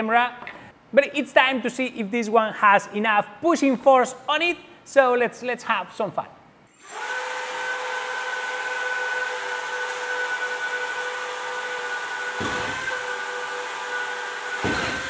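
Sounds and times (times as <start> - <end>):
low thump: 12.4 - 13.0.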